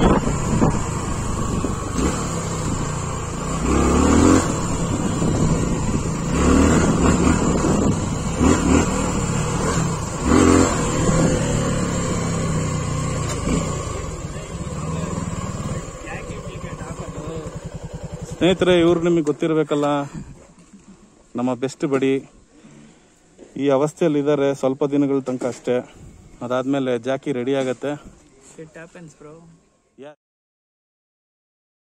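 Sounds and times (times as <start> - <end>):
motorcycle engine revving: 0.0 - 19.3.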